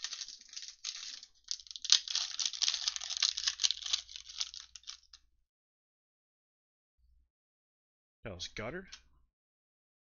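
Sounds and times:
foil wrapper crinkling and tearing: 0:00.0 - 0:05.2.

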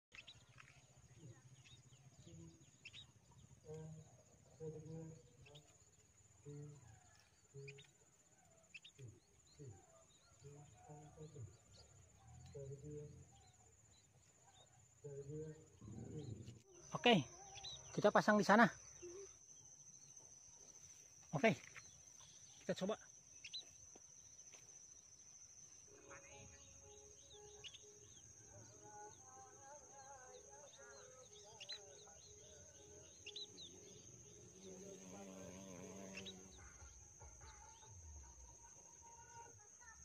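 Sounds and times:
high-pitched insect trill: 0:00.2 - 0:40.0
thin bird chirps: 0:11.7 - 0:37.9.

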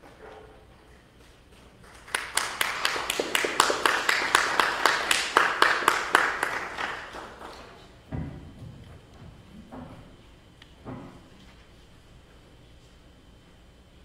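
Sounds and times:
group clapping: 0:01.8 - 0:07.9.

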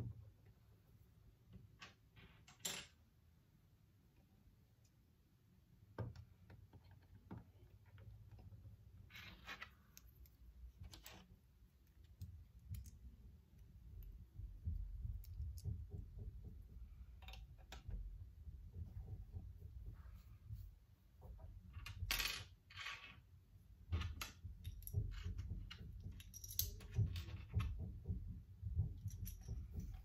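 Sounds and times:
plastic building pieces clicking: 0:09.2 - 0:14.2.

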